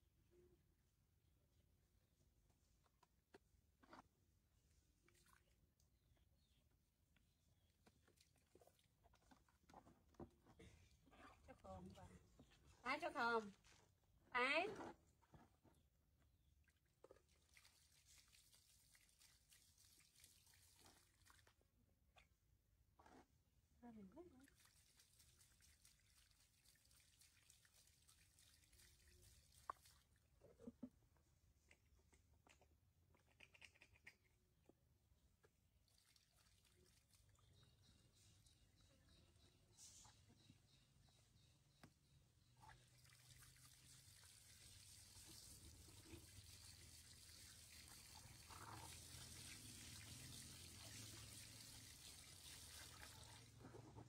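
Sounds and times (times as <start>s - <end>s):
water dripping: 24.1s - 30.2s, 35.4s - 37.7s, 42.6s - 53.6s.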